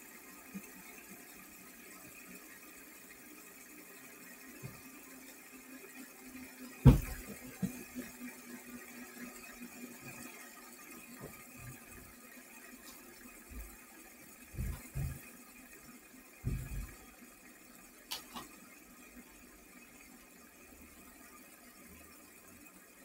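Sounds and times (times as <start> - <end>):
fidget spinner whirring: 0.0 - 23.0
soft low thumps: 6.8 - 7.8, 14.5 - 15.3, 16.4 - 17.0.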